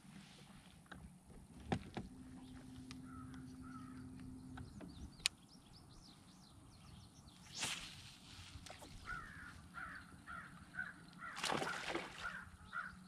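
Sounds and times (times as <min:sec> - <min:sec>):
low steady hum: 0:00.0 - 0:13.0
birds calling: 0:02.2 - 0:07.9, 0:08.7 - 0:13.0.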